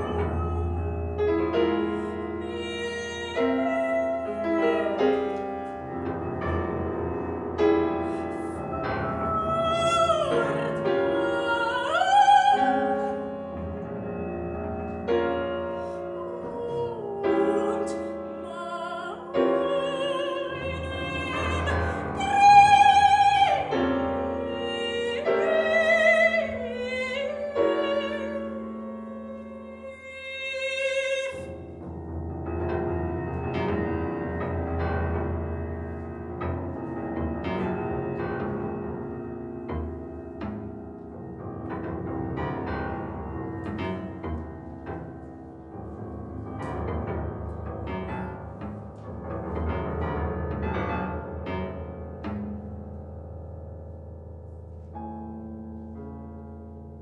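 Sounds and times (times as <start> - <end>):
soprano singing: 0.0 - 6.4, 7.6 - 31.9
grand piano accompaniment: 0.0 - 57.0.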